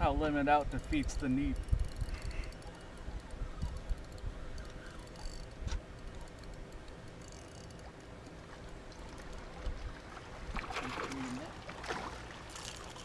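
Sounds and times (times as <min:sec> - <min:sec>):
faint clicks: 0:01.6 - 0:09.7.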